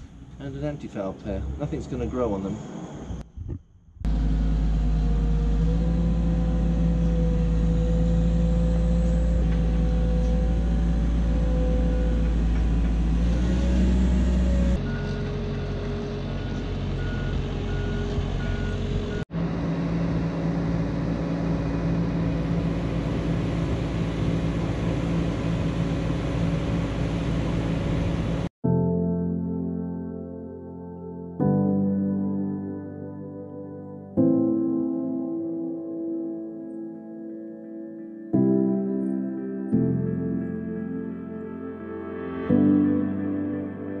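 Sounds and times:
engine running steadily: 0:04.1 - 0:28.5.

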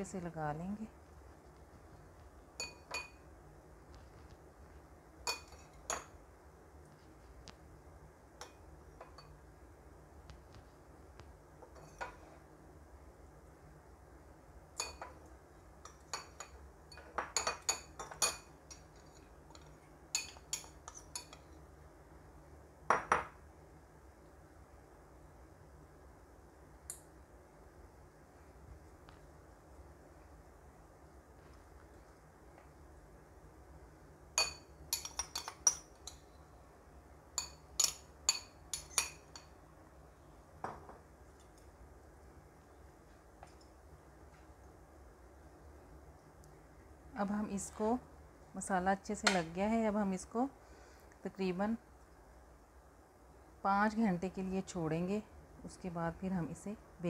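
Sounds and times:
metal spoon clinking on bowl: 0:02.6 - 0:03.2, 0:15.8 - 0:21.4, 0:34.4 - 0:36.2, 0:37.4 - 0:39.5.

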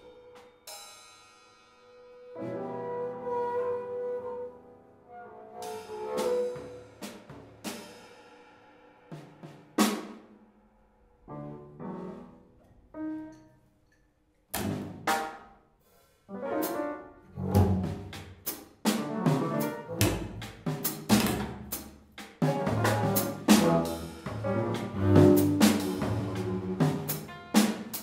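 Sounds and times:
drum kit playing: 0:06.2 - 0:08.4, 0:09.0 - 0:10.4, 0:14.6 - 0:15.4, 0:16.6 - 0:28.0.

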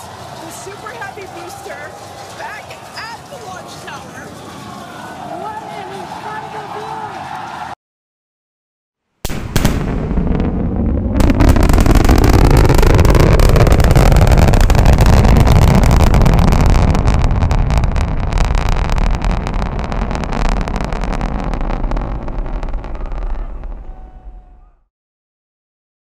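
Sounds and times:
rocket engines roaring: 0:09.5 - 0:24.8.

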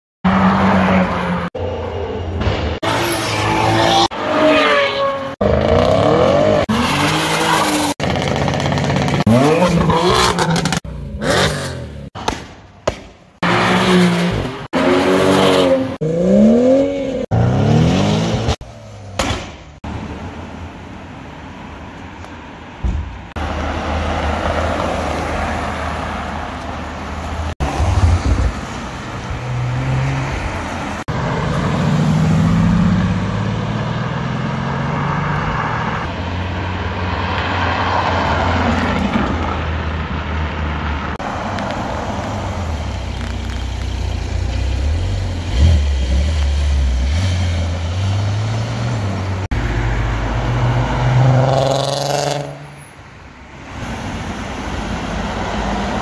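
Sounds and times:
cars driving past: 0:19.8 - 0:56.0.

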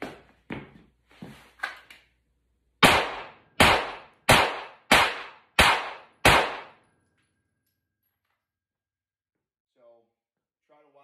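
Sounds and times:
pistol shots: 0:02.8 - 0:06.9.

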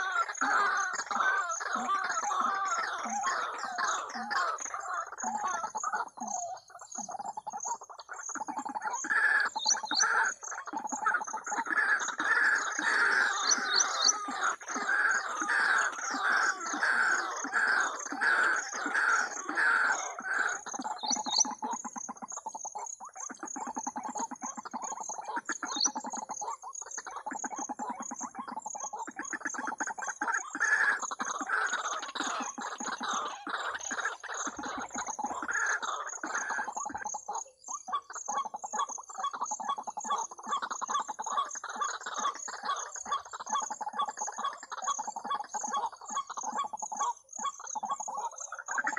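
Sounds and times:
waterhen calls through speaker: 0:00.0 - 0:06.5.

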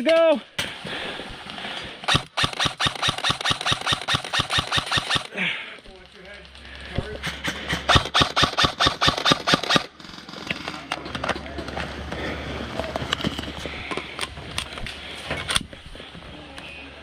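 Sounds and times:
airsoft rifle firing shots: 0:02.1 - 0:05.4, 0:07.3 - 0:10.0
rustling with small clicks: 0:05.8 - 0:07.0.

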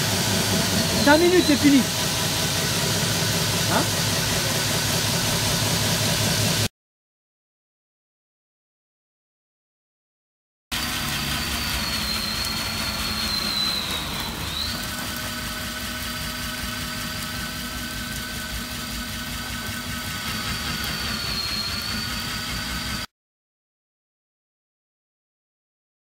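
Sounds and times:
core drill motor whining: 0:10.8 - 0:23.1.

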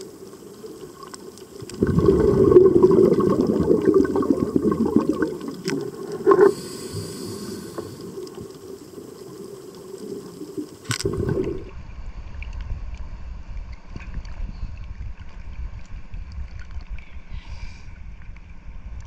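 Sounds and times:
muffled underwater noise: 0:00.0 - 0:11.8
splash: 0:01.0 - 0:06.8
wind rumble on microphone: 0:11.0 - 0:19.0.

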